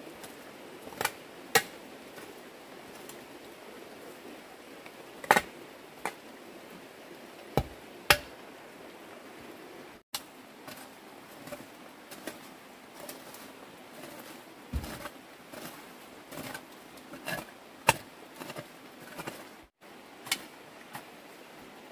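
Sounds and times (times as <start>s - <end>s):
hoe striking wet earth: 7.6s - 8.3s, 14.7s - 15.7s
hoe strokes through soil and leaves: 10.2s - 21.9s.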